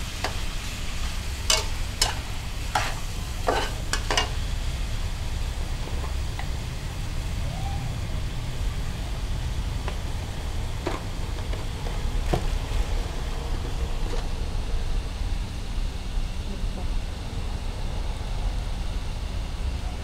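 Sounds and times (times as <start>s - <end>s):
food sizzling in a wok: 0.0s - 13.0s
gas stove rumble: 0.0s - 20.0s.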